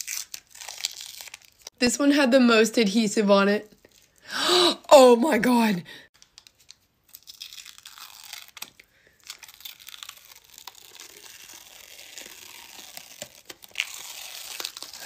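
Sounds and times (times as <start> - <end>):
adhesive crackling and tearing: 0.0 - 1.8, 6.2 - 15.0.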